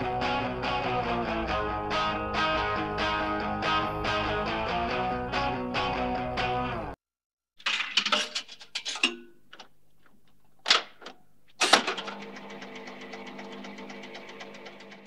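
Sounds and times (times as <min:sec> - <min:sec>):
electric guitar band music: 0:00.0 - 0:07.0
guitar stabs: 0:00.0 - 0:07.0.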